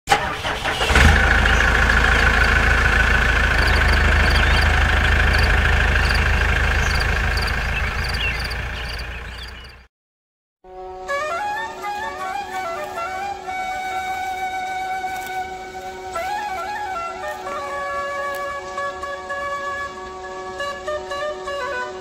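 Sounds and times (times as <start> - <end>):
tractor engine running: 0.1 - 9.9.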